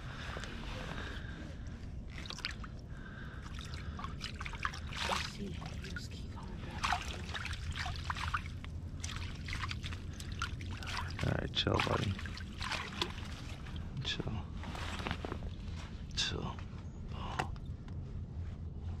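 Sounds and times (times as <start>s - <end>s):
water splashing and sloshing: 0.0s - 16.2s
fish thrashing in a net: 3.5s - 5.8s, 6.7s - 13.8s.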